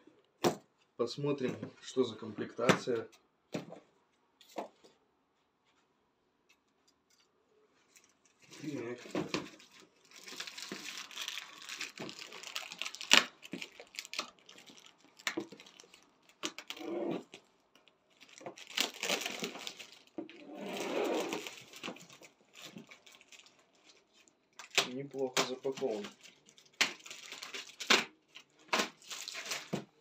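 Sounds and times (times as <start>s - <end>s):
plastic film crinkling and tearing: 8.0s - 30.0s.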